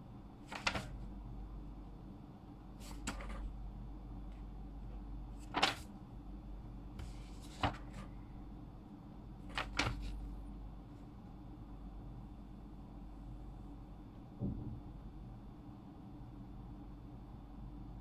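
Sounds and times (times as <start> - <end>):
low steady hum: 0.0 - 18.0
pen clicks and paper rustles: 0.5 - 1.0, 2.8 - 3.5, 5.4 - 5.9, 7.0 - 8.1, 9.5 - 10.2.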